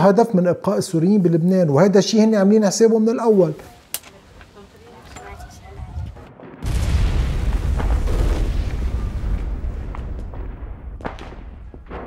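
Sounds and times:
deep rumbling boom: 0:05.8 - 0:12.0.

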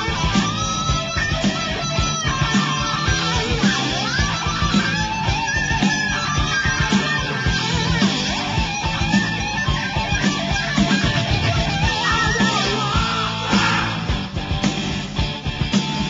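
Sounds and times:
rock music with electric guitar: 0:00.0 - 0:16.0.

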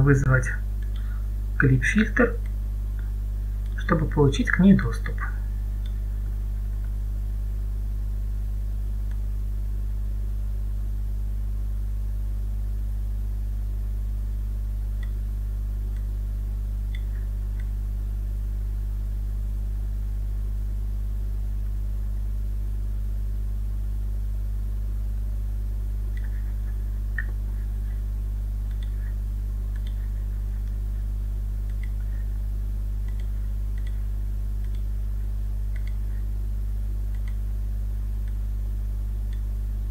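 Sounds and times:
low electrical hum: 0:00.0 - 0:39.9
computer mouse clicks: 0:26.1 - 0:26.4, 0:28.6 - 0:30.8, 0:31.6 - 0:32.2, 0:33.0 - 0:34.0, 0:34.6 - 0:34.9, 0:35.7 - 0:36.2, 0:37.1 - 0:37.4.

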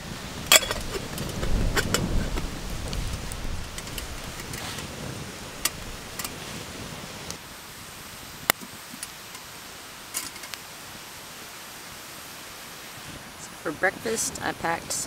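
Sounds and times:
fire popping: 0:00.0 - 0:11.0
campfire crackling: 0:00.0 - 0:15.0
steady hiss: 0:00.0 - 0:15.0.

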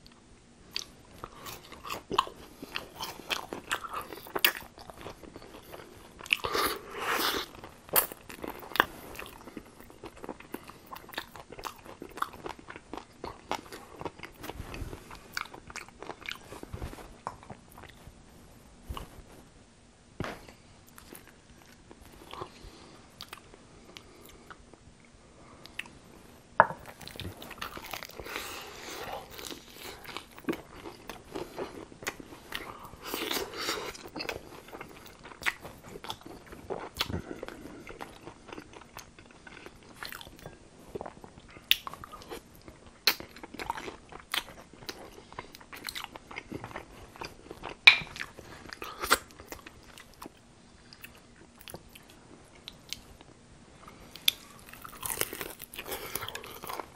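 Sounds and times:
crunching fried chicken batter: 0:54.2 - 0:56.9
wet chewing: 0:54.2 - 0:56.9.

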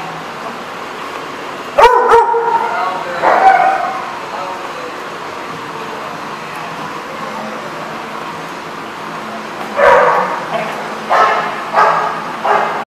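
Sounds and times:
loud dog barks: 0:01.8 - 0:02.6, 0:09.8 - 0:10.5, 0:11.1 - 0:12.8
dogs play-fighting: 0:09.6 - 0:12.8.

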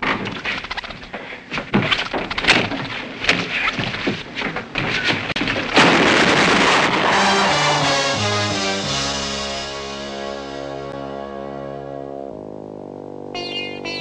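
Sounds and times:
cartoon thumps and clatters: 0:00.0 - 0:07.2
loud drawn-out crash: 0:05.8 - 0:10.7.

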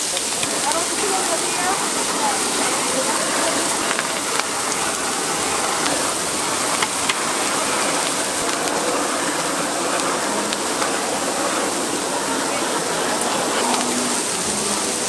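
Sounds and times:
blowtorch hissing: 0:00.0 - 0:15.0
griddle sizzling: 0:00.0 - 0:15.0.

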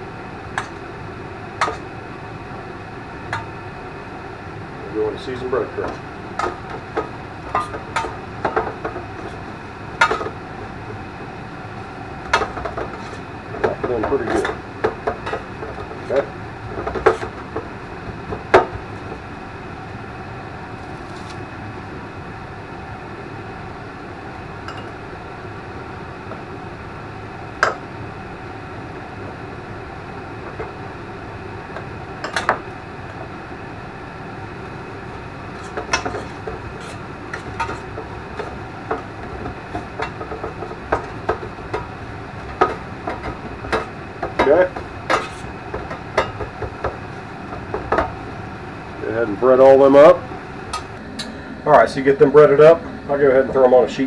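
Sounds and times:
steady background hum: 0:00.0 - 0:54.0.

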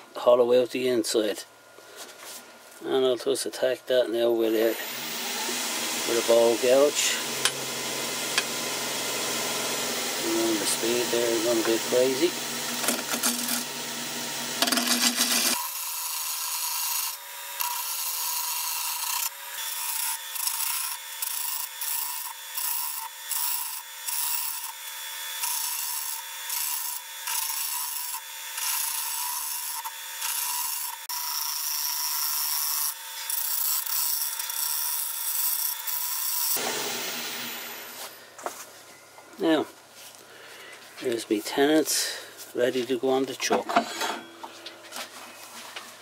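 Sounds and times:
lathe gouge shaving wood: 0:04.5 - 0:38.2.

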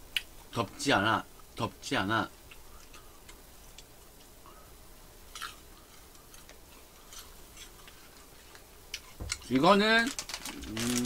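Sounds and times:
person chewing crunchy food: 0:05.3 - 0:09.5, 0:10.3 - 0:11.0.

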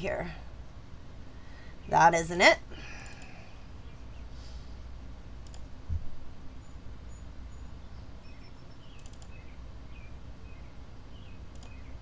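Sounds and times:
steady low hum: 0:00.0 - 0:12.0
faint clicks: 0:03.0 - 0:03.4, 0:05.4 - 0:05.7, 0:09.0 - 0:09.4, 0:11.5 - 0:11.8
soft thump: 0:05.9 - 0:06.2.

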